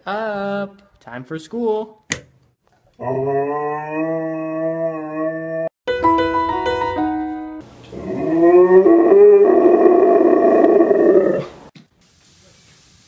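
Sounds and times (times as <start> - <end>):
husky howling: 3.0 - 5.7, 8.0 - 11.6
music with held notes: 5.9 - 7.6.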